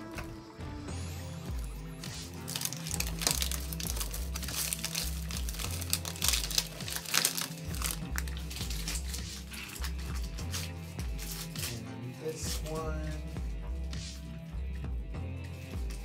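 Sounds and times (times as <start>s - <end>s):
background music with bass line: 0.0s - 16.0s
plastic packaging crinkling: 1.6s - 11.8s.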